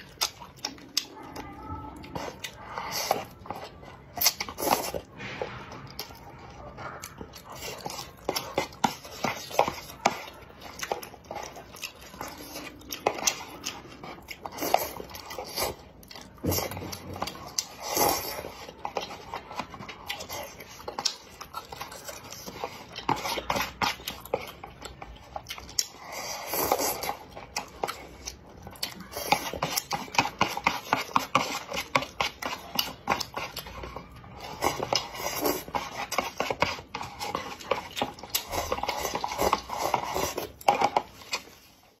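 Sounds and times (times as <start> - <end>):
wet chewing and mouth clicks: 0.0 - 42.0
chopsticks scraping paper cup: 21.7 - 25.0, 29.0 - 42.0.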